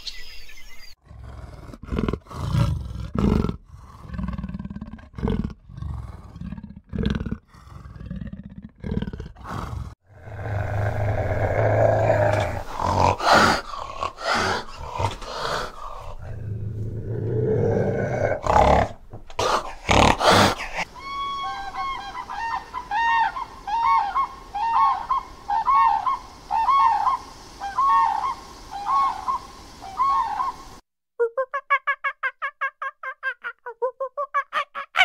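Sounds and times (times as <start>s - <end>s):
rough harsh animal calls: 9.3s - 16.4s, 17.0s - 29.4s
short rising and falling animal calls: 19.6s - 30.7s.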